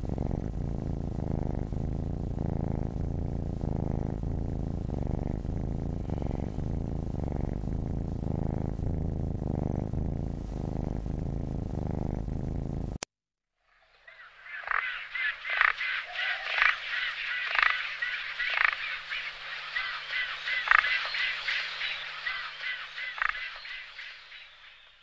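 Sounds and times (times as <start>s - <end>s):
chorus of animal calls: 13.8s - 24.9s.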